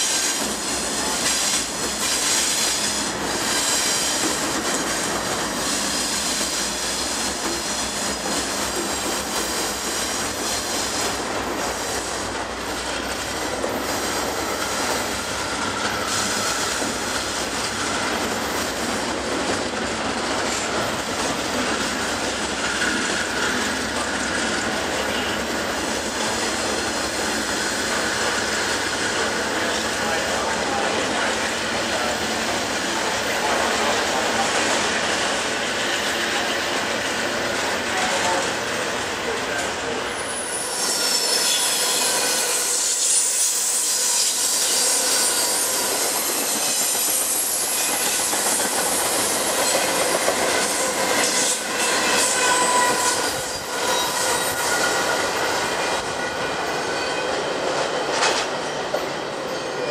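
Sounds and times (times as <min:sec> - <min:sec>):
train wheels rumbling on rails: 0:00.0 - 0:59.9
high wheel squeal: 0:15.3 - 0:17.1, 0:40.1 - 0:49.9, 0:51.2 - 0:57.4.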